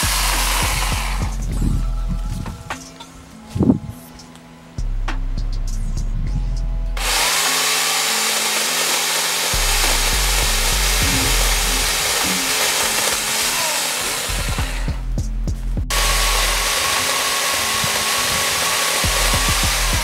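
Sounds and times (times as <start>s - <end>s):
electric pole saw cutting branches: 0.0s - 1.5s, 7.0s - 15.0s, 15.9s - 20.0s
background music with bass beat: 0.0s - 7.2s, 9.6s - 16.9s, 19.0s - 20.0s.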